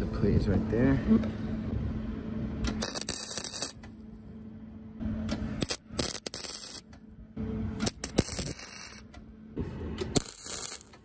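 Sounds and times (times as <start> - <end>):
steady low hum: 0.0 - 11.0
welder arc crackling: 2.7 - 3.9, 5.3 - 7.0, 7.8 - 9.2, 10.0 - 11.0.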